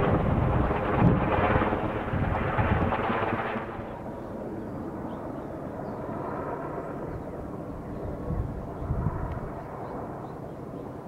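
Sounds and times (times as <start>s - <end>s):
helicopter rotors chopping: 0.0s - 5.3s.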